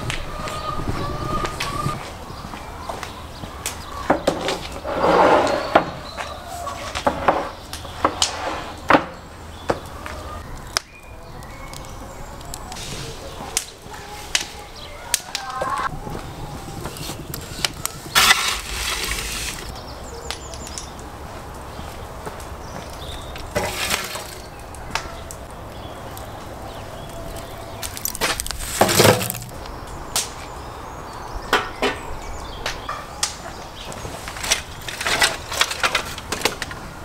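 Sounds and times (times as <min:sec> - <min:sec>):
wood fire burning: 0:02.0 - 0:31.3, 0:33.2 - 0:37.0
wood cracking and knocking: 0:27.3 - 0:29.7.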